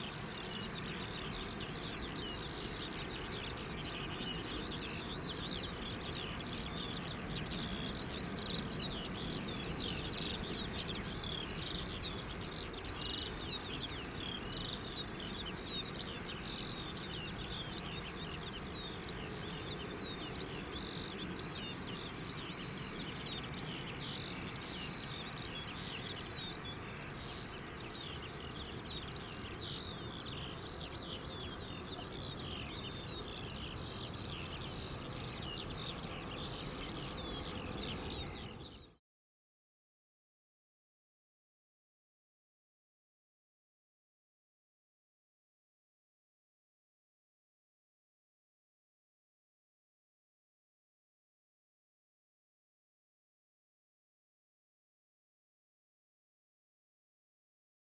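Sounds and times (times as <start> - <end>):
birds chirping: 0.0 - 39.0.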